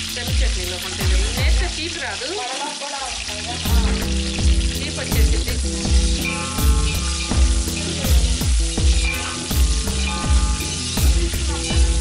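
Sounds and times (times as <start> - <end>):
background music with low beat: 0.0 - 1.8, 3.4 - 12.0
onions sizzling in hot oil: 0.0 - 12.0
metal spoon stirring in pot: 3.2 - 12.0.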